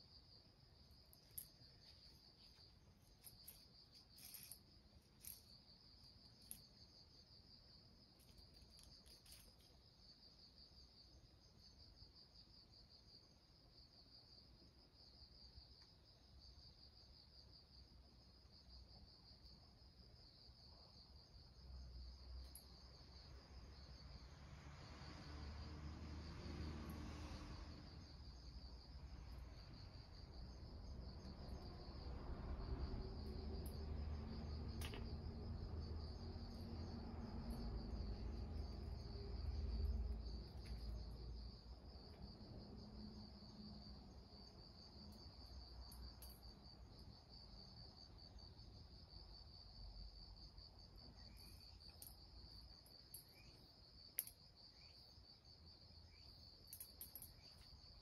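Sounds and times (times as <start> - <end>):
insect chirring: 0.0 - 12.0, 27.1 - 58.0.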